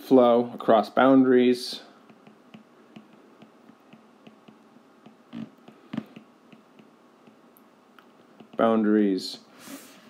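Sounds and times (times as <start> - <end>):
stylus tapping on glass screen: 2.0 - 7.4, 8.4 - 8.7.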